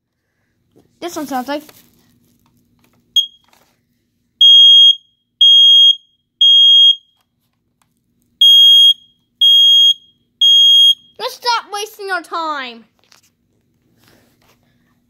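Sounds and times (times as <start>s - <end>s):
smoke alarm beeping: 3.2s - 3.5s, 4.4s - 7.2s, 8.4s - 11.3s
smoke alarm chirp: 3.2s - 3.5s, 4.4s - 7.2s, 8.4s - 11.2s.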